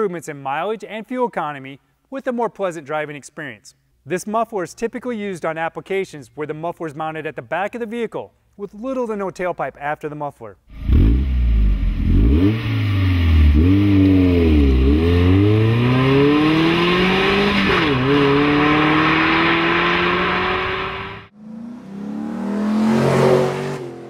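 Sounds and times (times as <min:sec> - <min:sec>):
engine revving: 0:10.7 - 0:24.0.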